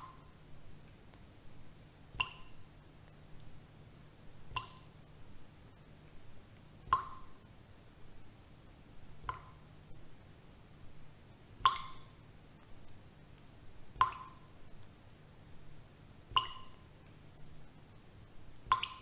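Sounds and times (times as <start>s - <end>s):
water drops plinking: 11.7s - 12.1s, 14.0s - 14.4s, 16.4s - 16.8s, 18.7s - 19.0s.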